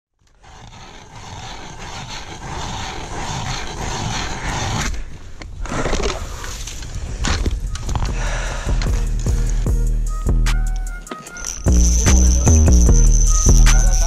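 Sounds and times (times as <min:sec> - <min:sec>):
ice auger grinding through ice: 0:00.2 - 0:05.1.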